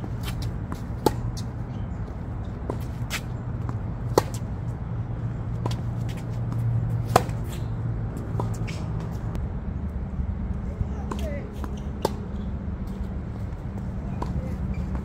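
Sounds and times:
racket hitting tennis ball: 0.0s - 1.6s, 2.5s - 4.8s, 5.5s - 9.3s
low background rumble: 0.0s - 15.0s.

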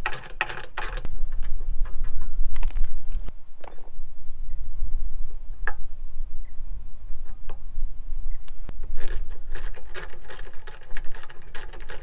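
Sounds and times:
hand tool clicking on metal parts: 8.8s - 12.0s.

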